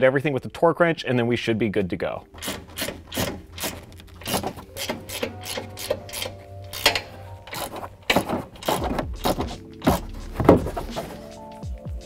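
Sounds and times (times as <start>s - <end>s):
ratchet wrench clicking: 2.4s - 10.0s.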